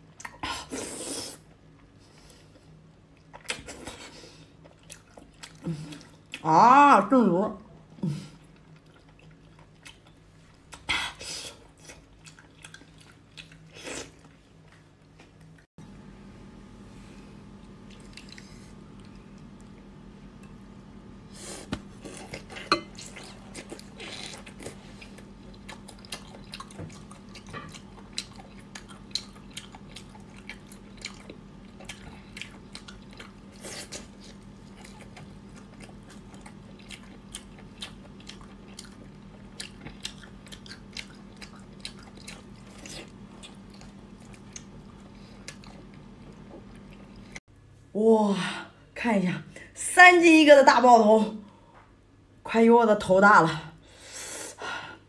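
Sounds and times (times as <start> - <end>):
person chewing with wet clicks: 3.1 - 4.0, 4.6 - 6.5, 8.4 - 10.9, 11.6 - 15.7, 17.8 - 20.6, 22.0 - 47.4
low hum: 15.8 - 48.1.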